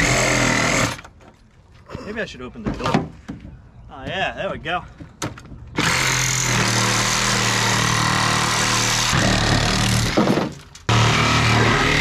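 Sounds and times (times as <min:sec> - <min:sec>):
reciprocating saw cutting steel: 0:10.9 - 0:12.0.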